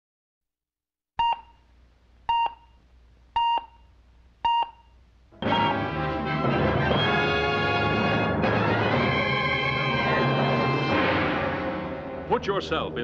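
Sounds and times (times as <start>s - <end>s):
short electronic beeps: 1.2s - 1.6s, 3.4s - 3.9s, 4.5s - 5.7s
orchestral trailer music: 5.4s - 13.0s.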